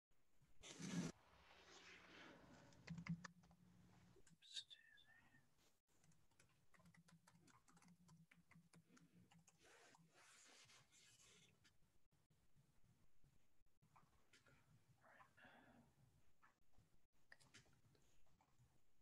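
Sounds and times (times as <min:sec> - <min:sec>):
keyboard typing: 0:02.8 - 0:03.6, 0:06.0 - 0:09.8.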